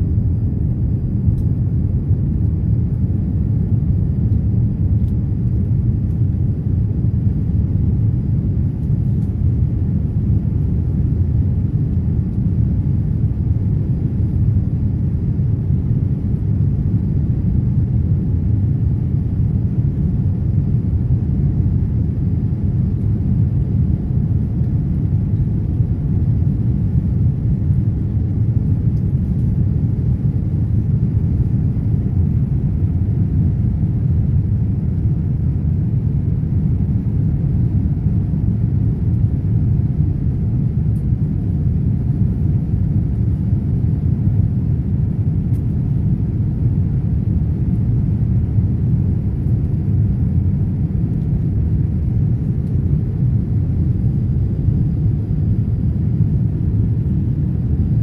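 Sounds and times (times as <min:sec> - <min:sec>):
aircraft cabin engine rumble: 0:00.0 - 0:58.0
faint steady hum: 0:00.0 - 0:58.0.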